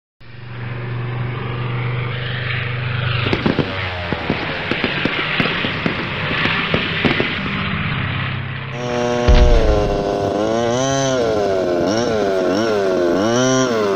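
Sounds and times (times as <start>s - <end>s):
sharp clicks and knocks: 9.3s - 10.3s.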